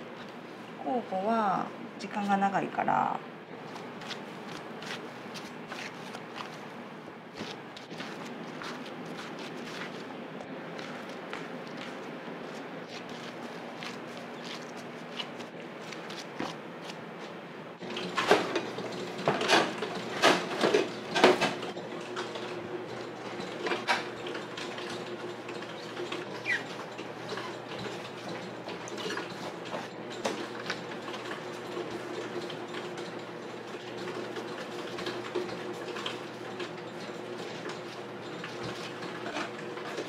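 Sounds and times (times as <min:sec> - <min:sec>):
hands tapping and rubbing dough: 0:07.3 - 0:12.0.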